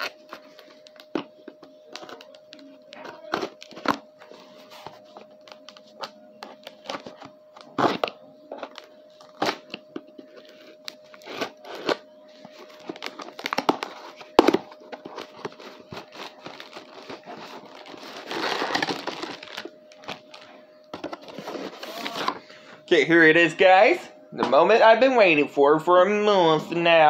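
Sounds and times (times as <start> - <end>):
faint steady hum: 0.0 - 27.0
packaging tearing and crinkling: 10.4 - 22.3.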